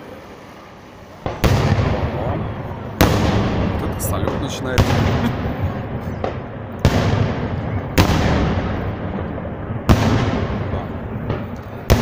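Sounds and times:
rumble of firework bursts: 0.1s - 12.0s
firework bangs: 1.1s - 12.0s.

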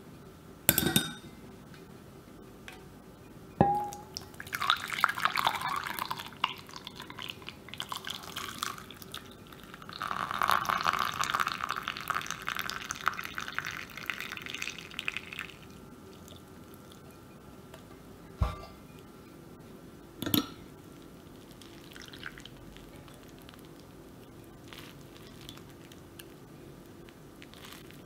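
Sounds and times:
liquid pouring through strainer: 4.4s - 15.7s, 21.4s - 23.6s.

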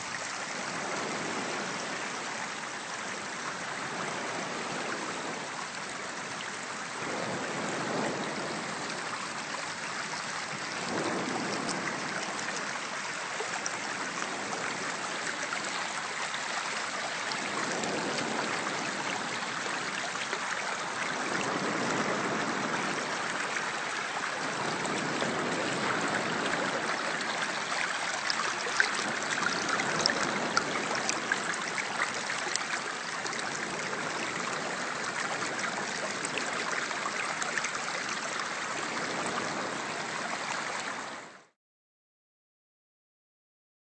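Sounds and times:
stream rushing over pebbles: 0.0s - 41.6s.

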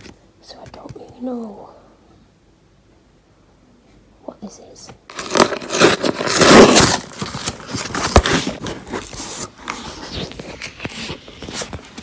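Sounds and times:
cardboard ripping: 5.1s - 12.0s
paper and cardboard rustling: 5.1s - 12.0s.

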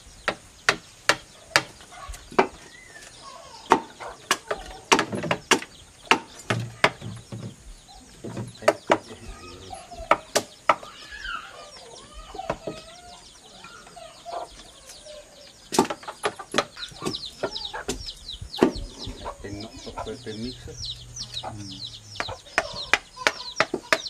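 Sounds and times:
birds calling: 0.0s - 24.0s
knife chopping wood: 3.7s - 7.0s.

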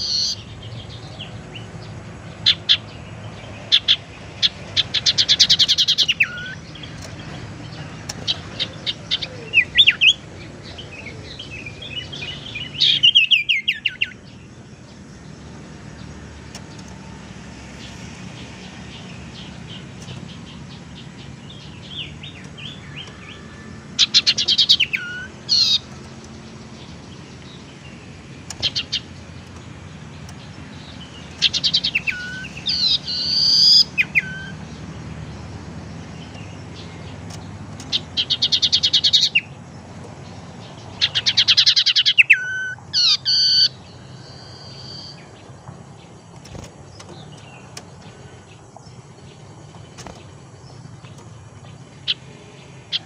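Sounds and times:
bird singing rapid trills: 0.0s - 53.0s
bird whistled notes: 31.6s - 34.6s, 41.3s - 45.2s.

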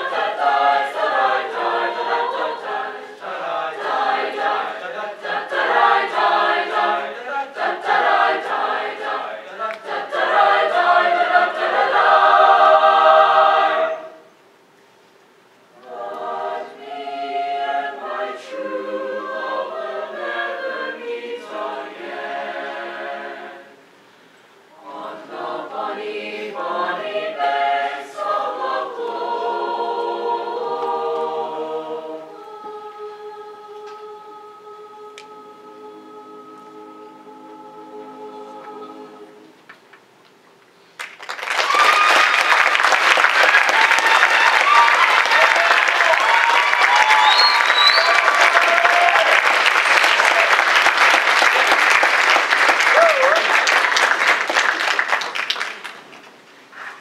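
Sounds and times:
choir singing a cappella: 0.0s - 14.4s, 15.7s - 24.1s, 24.7s - 39.7s.

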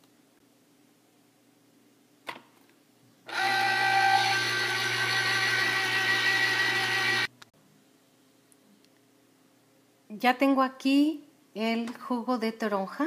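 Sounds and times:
electric juicer motor: 3.3s - 7.3s.

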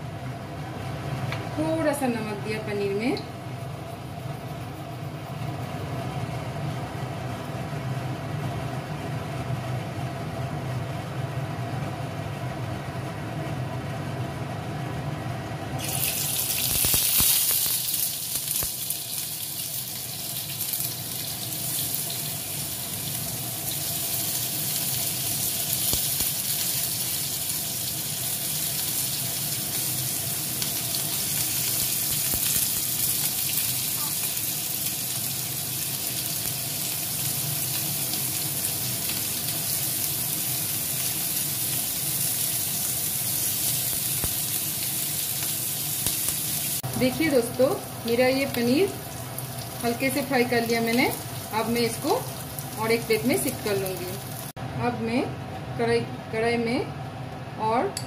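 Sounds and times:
food sizzling in hot oil: 15.8s - 54.6s.

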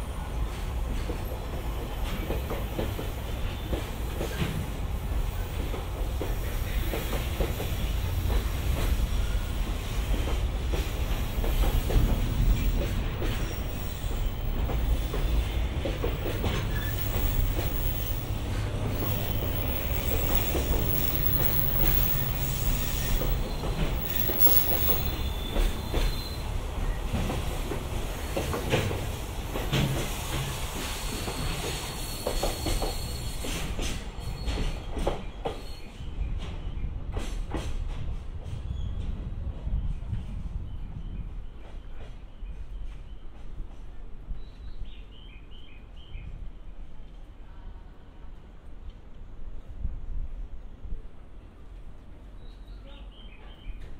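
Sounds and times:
freight train wheels rumbling: 0.0s - 45.3s
wheels clicking over rail joints: 10.1s - 26.4s
high wheel squeal: 12.4s - 26.6s.

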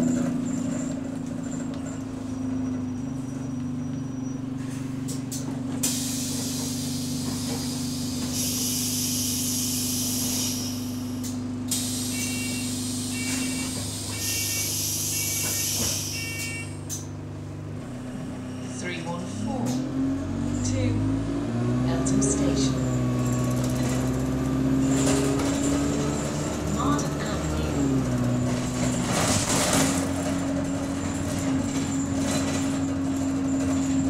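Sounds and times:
bus engine idling: 0.0s - 21.0s, 21.8s - 34.0s
air doors hissing: 5.8s - 17.1s
two-tone door warning beeps: 12.1s - 16.8s.

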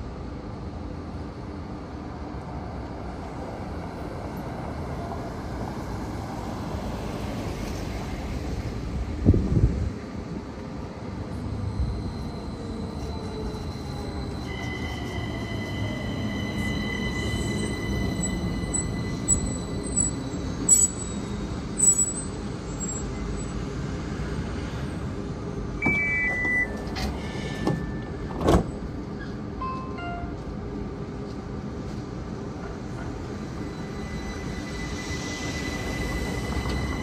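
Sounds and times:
light rail vehicle rumble: 0.0s - 37.0s
high-pitched squeals and whines: 33.4s - 37.0s.

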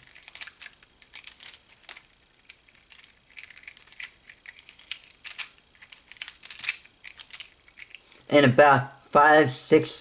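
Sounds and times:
plastic puzzle clicks: 0.0s - 8.0s.

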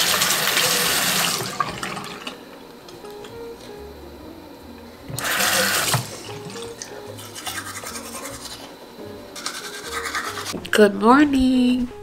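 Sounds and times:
soft background music with bass: 1.4s - 12.0s
toothbrush scrubbing: 7.2s - 8.7s, 9.4s - 10.6s.

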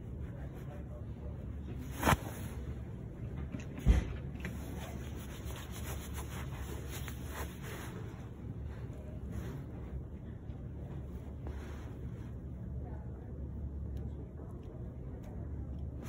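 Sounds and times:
rubbing against phone microphone: 4.4s - 10.1s.

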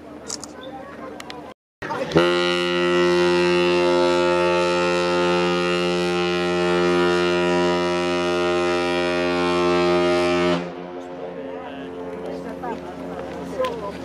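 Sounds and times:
ship's horn blast: 1.9s - 12.6s.

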